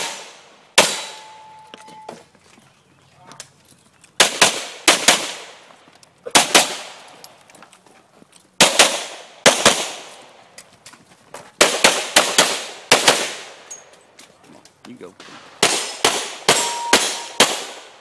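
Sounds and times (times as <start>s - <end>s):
pistol shots with echo: 0.0s - 1.4s, 4.2s - 5.6s, 6.3s - 7.0s, 8.6s - 10.1s, 11.6s - 13.6s, 15.2s - 18.0s.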